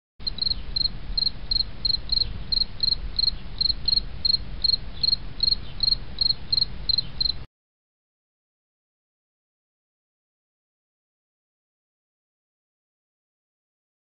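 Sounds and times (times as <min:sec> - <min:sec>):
cricket chirping: 0:00.2 - 0:07.5.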